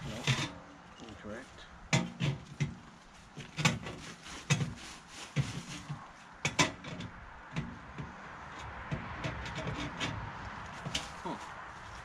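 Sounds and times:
metal stovepipe knocking: 1.9s - 2.8s, 6.4s - 8.2s.

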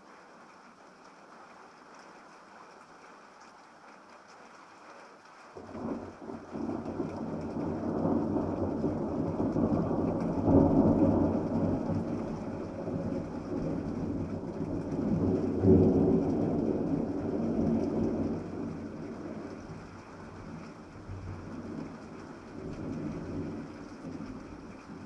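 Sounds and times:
rain falling: 0.0s - 25.0s
thunder rumbling: 5.6s - 25.0s.

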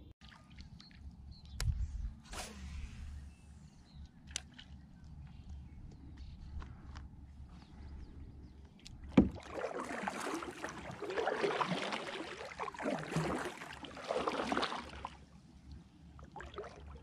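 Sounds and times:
paddle splashing water: 8.8s - 15.3s, 16.2s - 17.0s.

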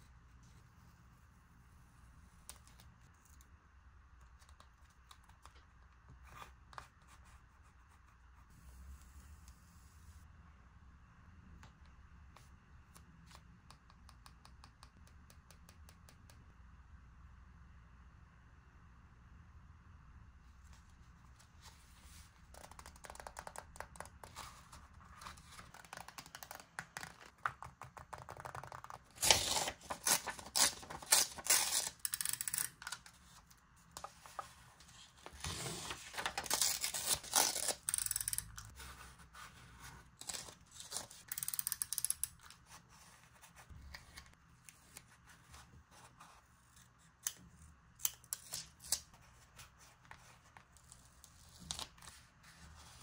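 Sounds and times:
paper rustling: 32.9s - 37.8s.

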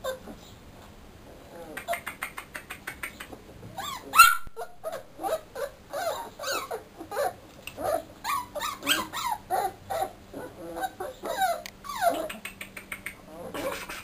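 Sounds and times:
puppies whining and whimpering: 3.7s - 12.4s.

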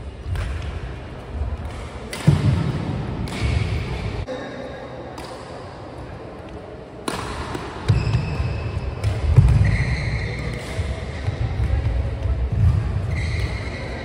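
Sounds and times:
racket striking shuttlecock: 1.6s - 4.0s, 7.0s - 8.4s.

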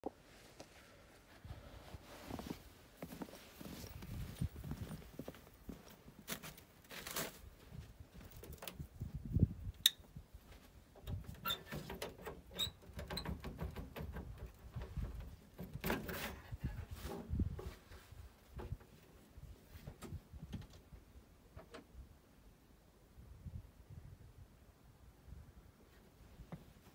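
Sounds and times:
clothing rustling: 0.3s - 8.3s
footsteps crunching in snow: 0.4s - 8.3s
cab door rattling open: 11.0s - 16.4s.

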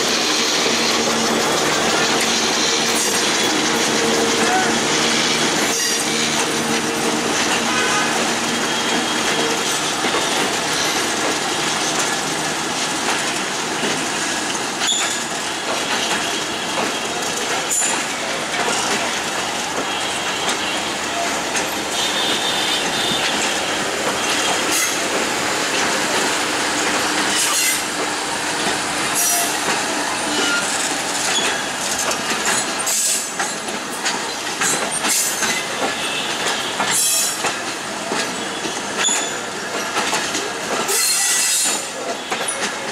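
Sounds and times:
train wheels clattering over rail joints: 0.0s - 42.9s
high-pitched wheel squeals: 30.3s - 30.7s.

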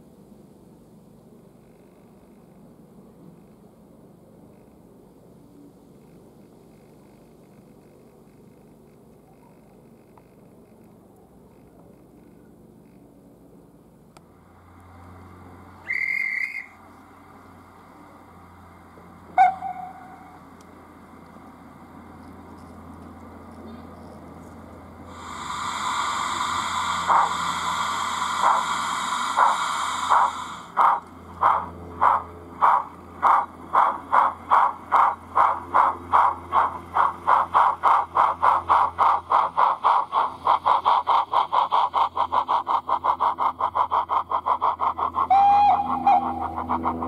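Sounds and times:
steam locomotive exhaust chuffs: 14.2s - 47.0s
steam hiss: 25.0s - 47.0s.

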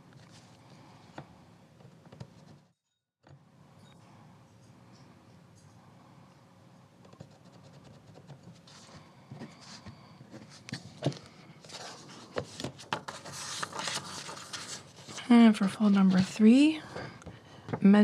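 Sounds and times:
book pages rustling: 0.0s - 0.8s, 8.4s - 16.6s.

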